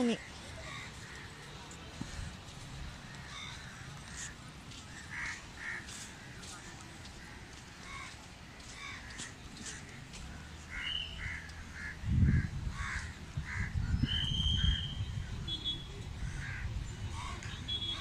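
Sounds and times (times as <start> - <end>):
crows cawing: 3.1 - 6.5, 7.2 - 10.0, 10.7 - 13.8, 16.2 - 17.5.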